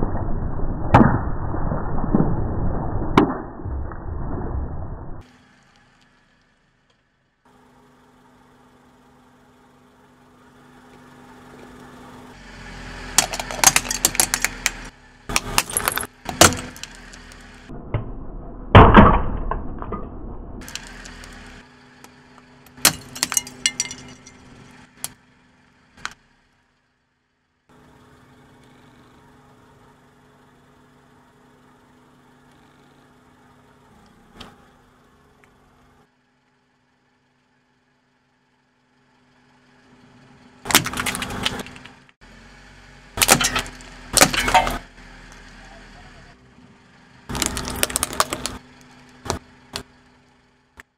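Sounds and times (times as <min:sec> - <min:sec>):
car engine idling: 0:05.2 - 0:17.7, 0:20.6 - 0:50.9
tyre crushing brittle objects: 0:13.2 - 0:17.4, 0:22.7 - 0:24.4, 0:40.7 - 0:41.9, 0:43.2 - 0:44.8, 0:47.3 - 0:48.6.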